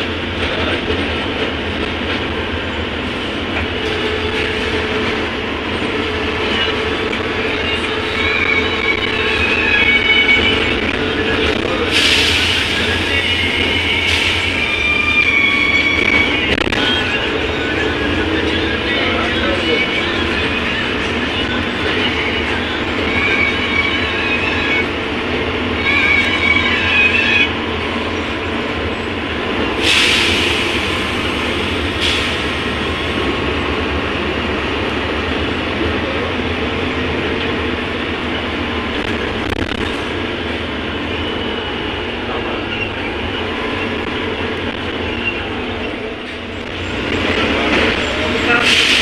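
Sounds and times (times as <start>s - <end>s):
bus engine and road rumble: 0.0s - 49.0s
high-pitched squeals: 5.8s - 28.4s.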